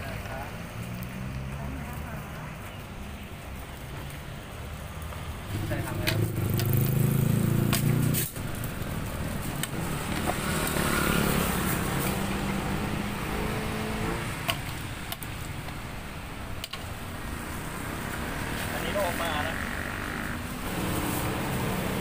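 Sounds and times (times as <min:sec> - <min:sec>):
vehicle engine passing: 0:00.0 - 0:03.1, 0:04.8 - 0:14.5, 0:17.6 - 0:22.0.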